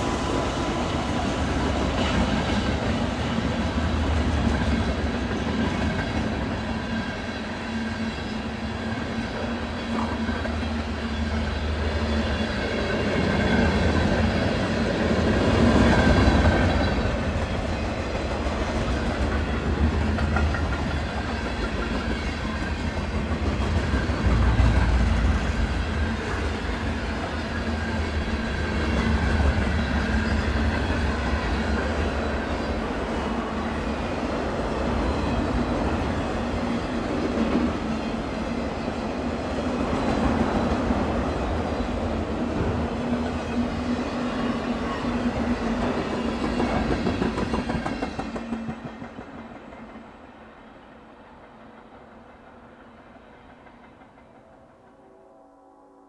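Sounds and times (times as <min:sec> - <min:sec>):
freight train rumbling past: 0:00.0 - 0:56.0.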